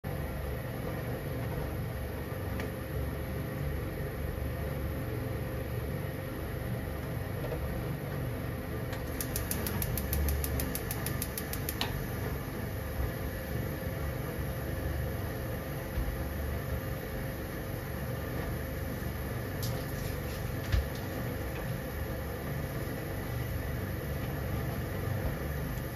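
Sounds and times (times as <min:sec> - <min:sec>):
kitchen equipment humming: 0:08.9 - 0:25.9
fast faint high ticks: 0:09.0 - 0:11.9.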